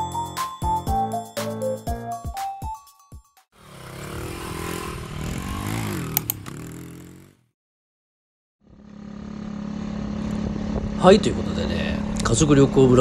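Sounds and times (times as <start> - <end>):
motorcycle engine revving: 3.6 - 7.6, 8.6 - 12.2
sharp clicks: 6.1 - 6.6
small engine running steadily: 8.6 - 13.0.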